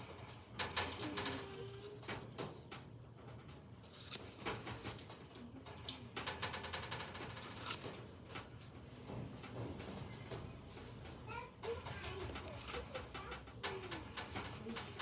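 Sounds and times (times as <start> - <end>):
smartphone being handled: 3.9 - 4.9, 7.3 - 7.8.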